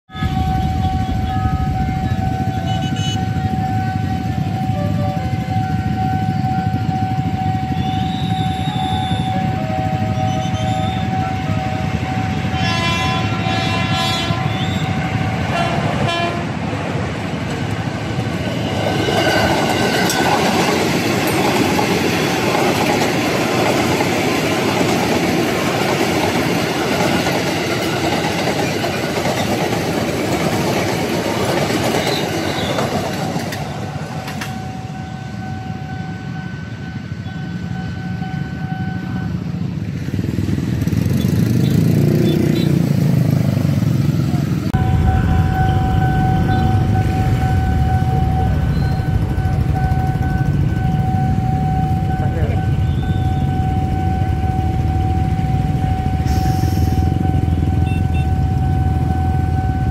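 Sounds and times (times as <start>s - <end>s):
train horn chord: 0.1s - 16.6s, 56.2s - 59.9s
train wheels rumbling on rails: 0.1s - 59.9s.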